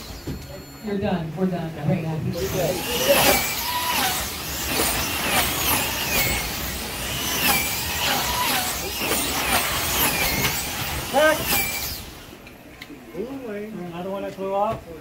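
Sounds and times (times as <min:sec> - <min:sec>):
slot car motors whining: 0:00.0 - 0:12.7
cars hissing on track: 0:02.4 - 0:12.4.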